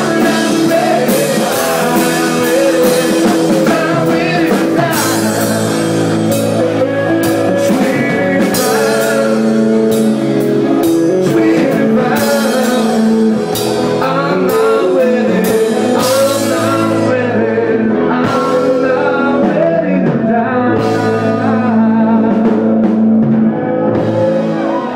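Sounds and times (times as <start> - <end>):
drum kit with cymbals: 0.0 - 17.5
bass guitar: 0.0 - 24.9
distorted electric guitars: 0.0 - 24.9
person singing: 0.0 - 24.9.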